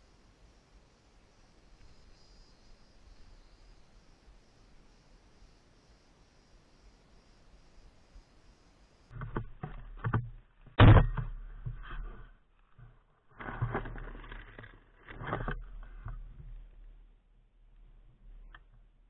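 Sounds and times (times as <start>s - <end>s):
rustling: 9.2s - 19.0s.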